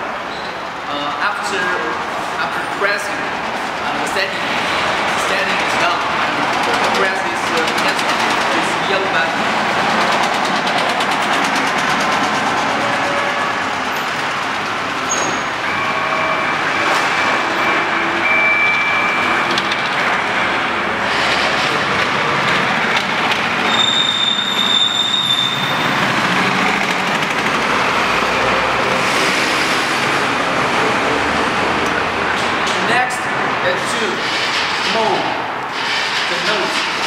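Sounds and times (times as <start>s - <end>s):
high machine whine: 0.0s - 37.0s
woodworking machinery running: 3.1s - 18.1s, 19.2s - 23.8s, 25.8s - 33.5s.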